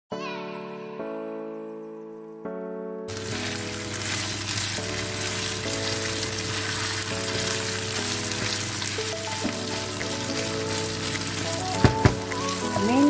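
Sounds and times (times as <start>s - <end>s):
background music: 0.1s - 13.0s
meat sizzling in a pan: 3.1s - 13.0s
wooden spatula stirring: 3.1s - 13.0s.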